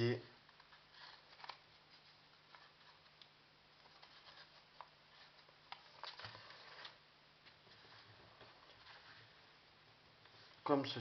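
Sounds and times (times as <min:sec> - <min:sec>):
paper being folded and creased: 0:00.5 - 0:03.2, 0:03.8 - 0:07.0.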